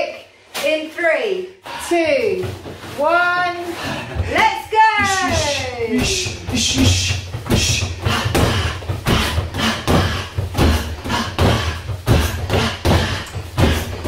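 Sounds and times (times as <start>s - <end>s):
punches and kicks on a punch bag: 5.1s - 14.0s.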